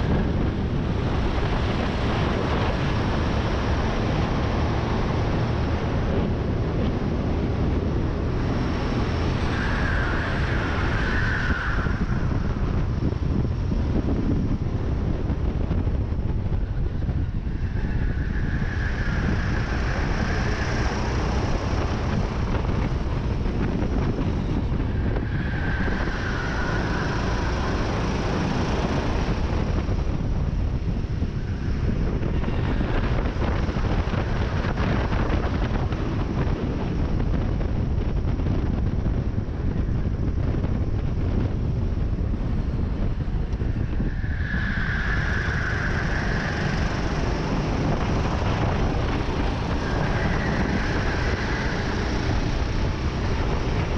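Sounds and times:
other karts nearby: 0.0 - 53.9
wind buffeting microphone: 0.0 - 53.9
kart engine running hard: 44.7 - 53.9.

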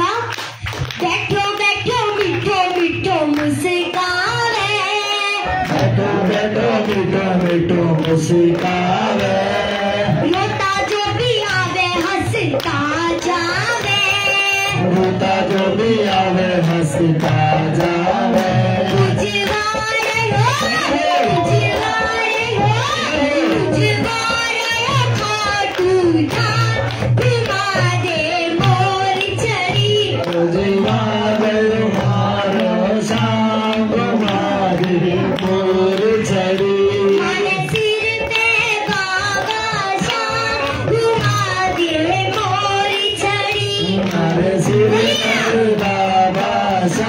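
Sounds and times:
girl singing into a microphone: 0.0 - 0.3, 1.0 - 5.6, 10.3 - 14.8, 19.1 - 30.2, 37.2 - 44.0
instrumental accompaniment: 0.4 - 47.0.

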